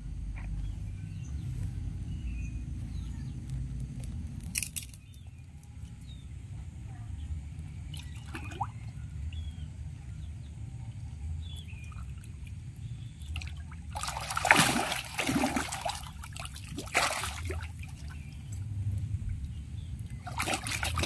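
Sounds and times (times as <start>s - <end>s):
fish splashing in water: 7.8s - 9.6s, 11.5s - 21.0s.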